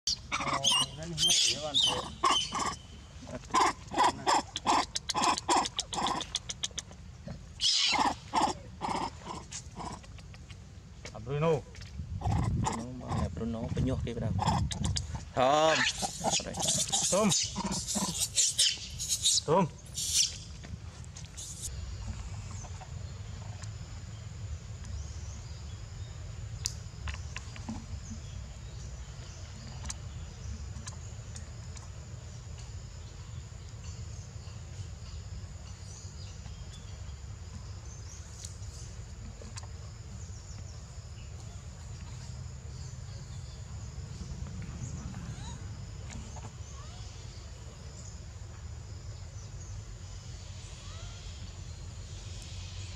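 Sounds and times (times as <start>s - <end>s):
macaques calling: 0.1s - 6.9s, 7.6s - 10.6s, 12.2s - 13.4s, 14.4s - 20.4s
high-pitched insect drone: 14.3s - 20.6s, 21.4s - 52.9s.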